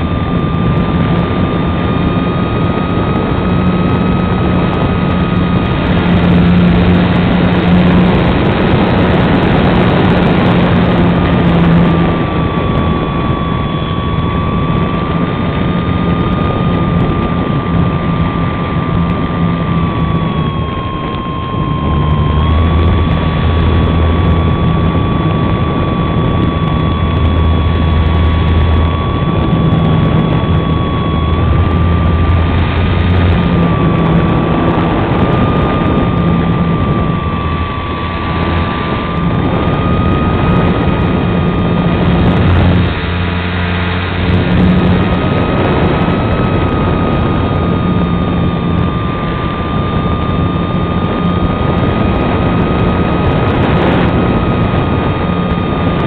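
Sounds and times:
electric motor and propeller whine: 0:00.0 - 0:56.0
wind rush: 0:00.0 - 0:56.0.

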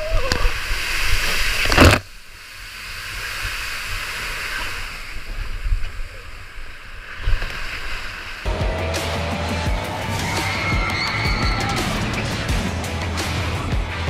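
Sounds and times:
hiss of spray and sliding water: 0:00.0 - 0:08.5
water rushing: 0:00.0 - 0:14.0.

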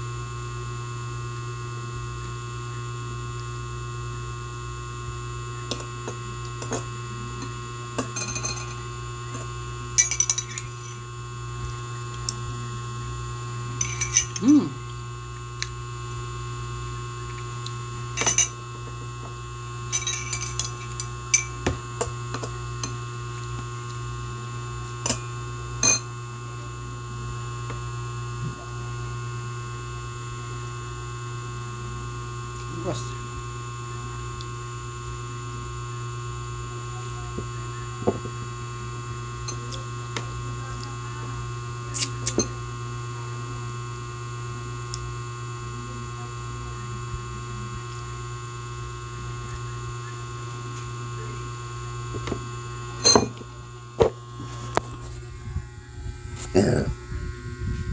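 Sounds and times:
steady electrical hum: 0:00.0 - 0:57.9
drinking glass clinks: 0:08.0 - 0:08.8, 0:10.0 - 0:10.8, 0:19.9 - 0:21.5.

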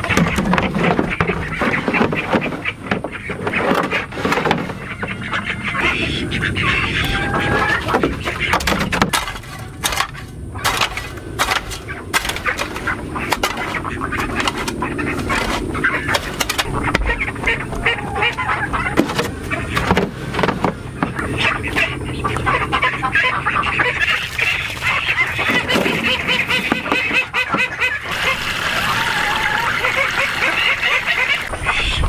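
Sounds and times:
ducks calling: 0:00.0 - 0:32.0.

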